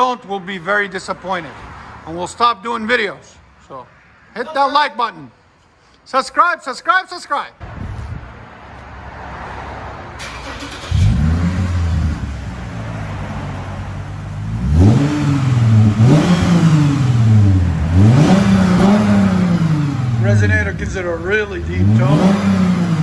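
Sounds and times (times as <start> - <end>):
car engine revving: 10.2 - 23.0.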